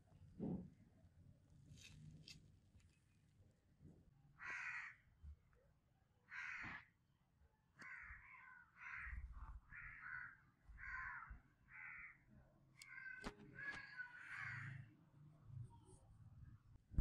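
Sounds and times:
faint harsh bird calls: 4.4 - 5.1, 6.2 - 7.0, 7.8 - 15.0.

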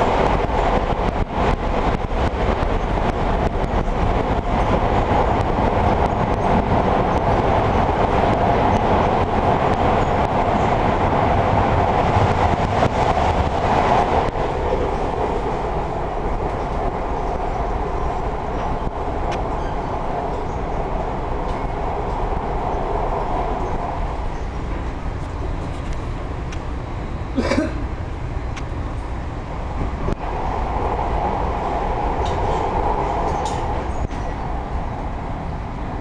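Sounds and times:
train wheels rumbling: 0.0 - 36.0.

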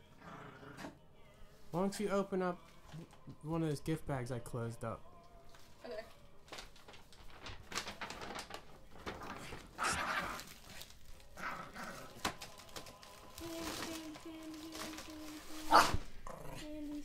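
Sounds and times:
paper bag rustling: 5.5 - 16.2.

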